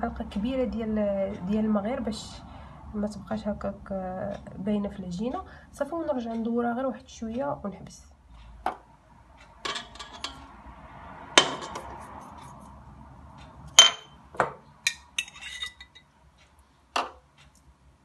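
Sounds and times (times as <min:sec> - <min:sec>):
spoon clinking on metal bowl: 0:13.8 - 0:14.1, 0:14.9 - 0:16.0.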